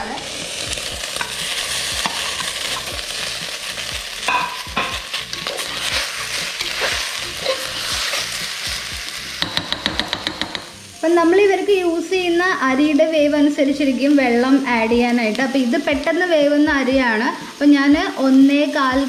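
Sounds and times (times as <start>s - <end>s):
rice and chicken sizzling in butter: 0.0s - 19.0s
steel spoon scraping a pot: 4.4s - 8.4s.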